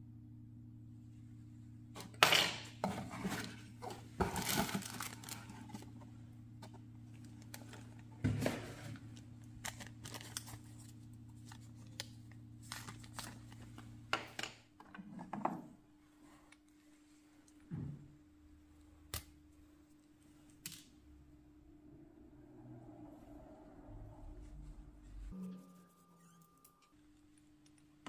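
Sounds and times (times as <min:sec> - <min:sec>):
low steady hum: 0:00.0 - 0:28.0
plastic bags crinkling: 0:03.3 - 0:06.0, 0:07.0 - 0:14.0.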